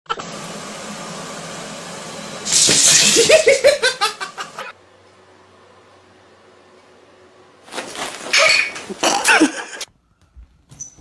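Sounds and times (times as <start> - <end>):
person laughing hard: 3.0 - 4.7, 8.9 - 9.9.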